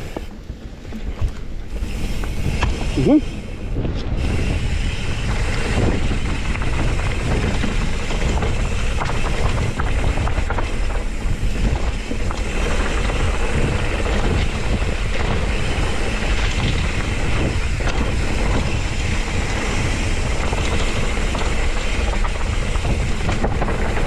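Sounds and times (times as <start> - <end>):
bike clicks and rattles: 0.0 - 24.0
bike tyres rolling on dirt: 0.0 - 24.0
wind on microphone: 0.0 - 24.0.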